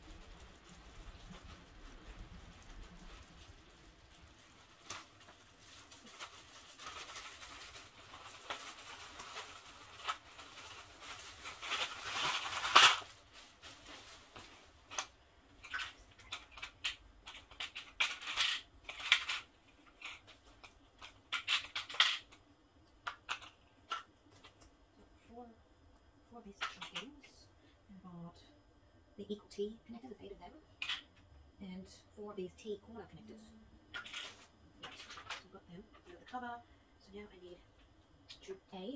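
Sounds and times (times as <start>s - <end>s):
plastic bag rustling: 0.0s - 22.3s, 34.0s - 36.2s
plastic connectors clattering: 14.4s - 22.4s, 23.0s - 24.7s, 26.6s - 27.1s, 33.9s - 36.1s
plastic connectors clicking on tile: 20.0s - 22.4s, 23.0s - 24.6s, 26.6s - 27.1s.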